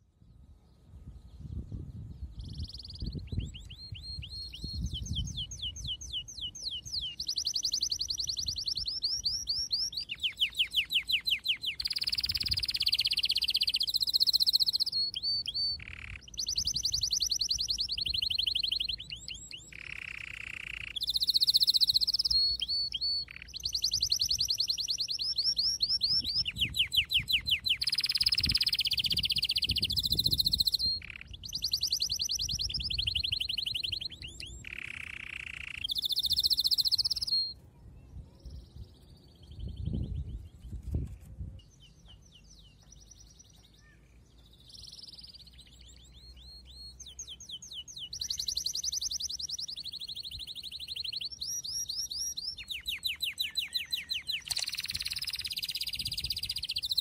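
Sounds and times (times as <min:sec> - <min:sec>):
bird chirps and trills: 0:00.0 - 0:57.0.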